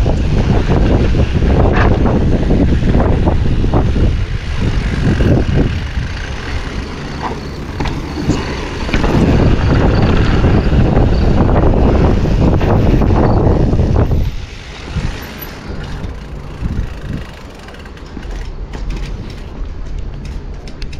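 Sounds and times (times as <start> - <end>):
bike knocking and rattling: 0.0 - 20.9
wind buffeting microphone: 0.0 - 20.9
tyres crunching on gravel: 4.5 - 10.6.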